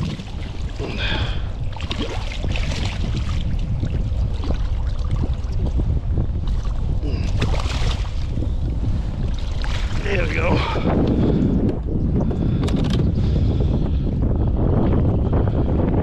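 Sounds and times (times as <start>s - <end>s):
water splashing against kayak: 0.0s - 11.7s
wind rumbling on microphone: 0.0s - 16.0s.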